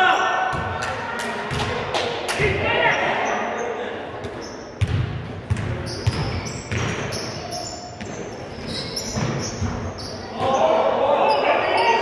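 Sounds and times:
basketball bouncing on wood floor: 4.8 - 7.2.

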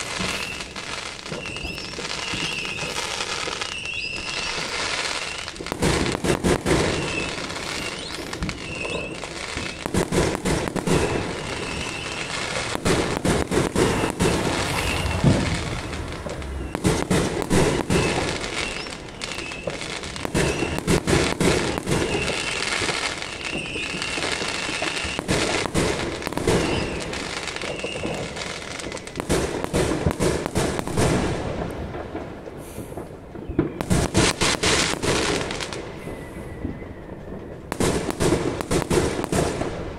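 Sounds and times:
fireworks bangs and crackles: 0.0 - 39.9.

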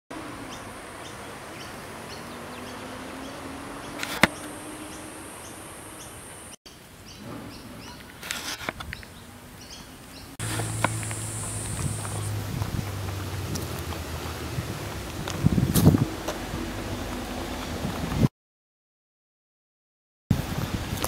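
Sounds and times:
high insect buzz: 10.4 - 12.4.

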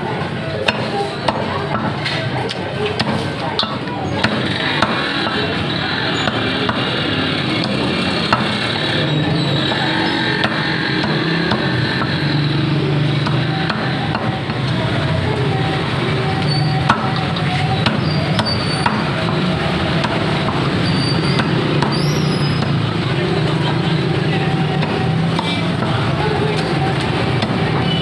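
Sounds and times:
street noise: 0.0 - 28.0
cleaver chopping on wooden block: 3.0 - 5.4, 6.3 - 6.9, 7.6 - 8.7, 10.4 - 12.2, 13.2 - 14.6, 16.9 - 17.2, 17.8 - 20.7, 21.4 - 22.0.

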